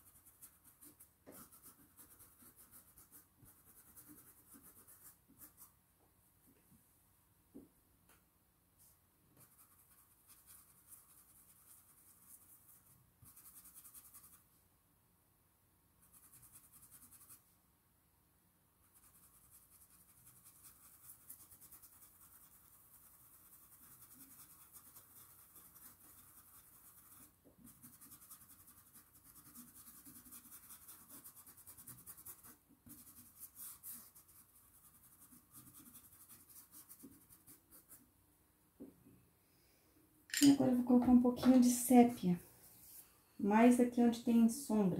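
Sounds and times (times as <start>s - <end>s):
brush scratching on cloth: 0.0s - 5.8s, 9.4s - 14.5s, 16.0s - 17.4s, 18.8s - 38.0s.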